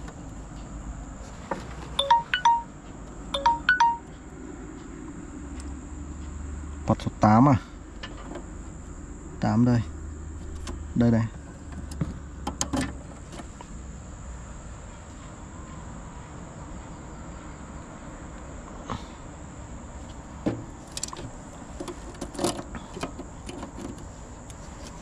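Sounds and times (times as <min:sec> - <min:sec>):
thin high tone: 0:02.0 - 0:04.2
cable connectors clicking and rattling: 0:20.6 - 0:25.0.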